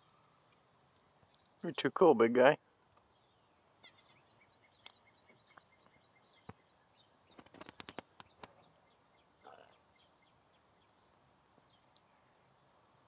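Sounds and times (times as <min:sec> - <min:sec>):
faint birds chirping: 0:00.0 - 0:13.0.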